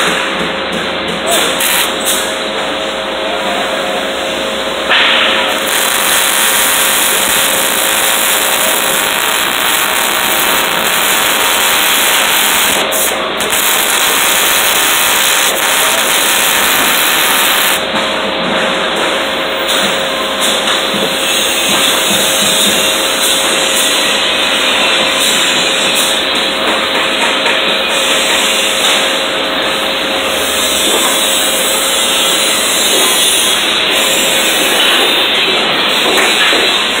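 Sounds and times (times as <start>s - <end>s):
welding arc hissing: 1.3s - 2.3s, 5.2s - 17.8s, 30.3s - 35.3s.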